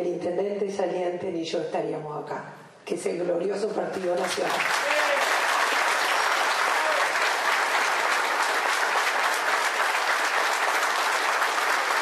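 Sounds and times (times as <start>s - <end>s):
crowd applauding: 4.2s - 12.0s.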